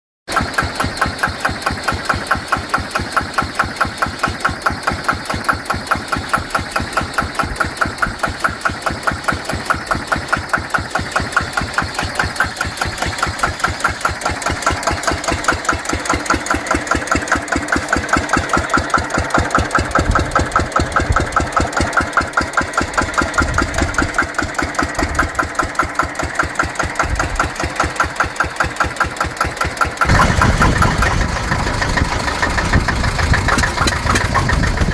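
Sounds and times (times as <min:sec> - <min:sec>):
tractor diesel engine idling: 0:00.3 - 0:34.9.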